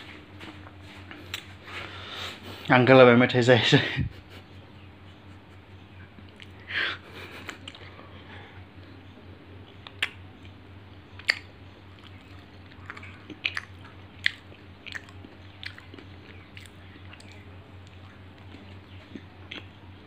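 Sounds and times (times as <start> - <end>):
low steady hum: 0.0 - 20.0
chewing clicks: 6.2 - 6.6, 9.6 - 19.8
hard sweet crunching: 11.2 - 19.8.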